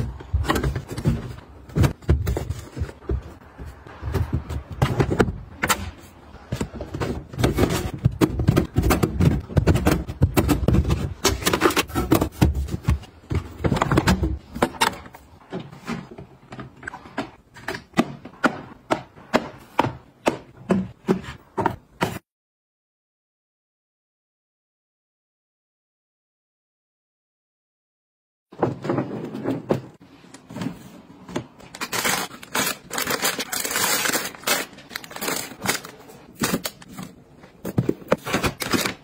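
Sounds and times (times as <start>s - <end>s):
knocks thumps and rustles: 0.0s - 5.7s.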